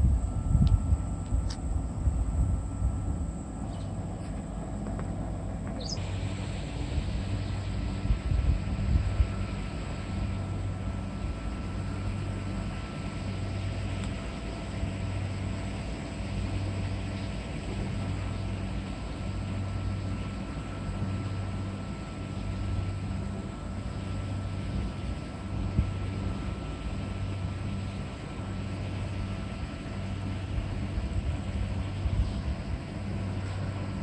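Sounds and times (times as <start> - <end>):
wind on microphone: 0.0 - 12.3, 22.6 - 34.0
distant engine drone: 0.0 - 34.0.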